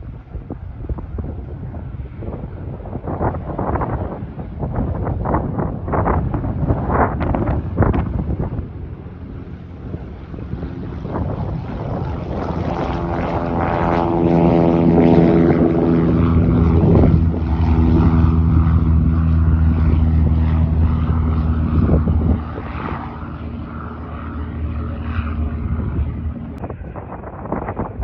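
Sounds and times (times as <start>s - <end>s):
propeller plane engine drone: 0.0s - 28.0s.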